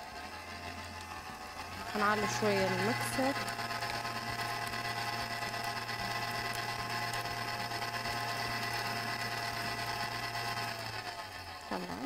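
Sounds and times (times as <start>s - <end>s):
stand mixer whining: 0.0s - 12.0s.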